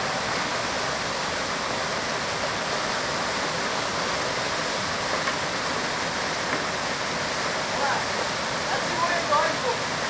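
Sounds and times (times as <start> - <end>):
waterfall rushing: 0.0 - 10.0.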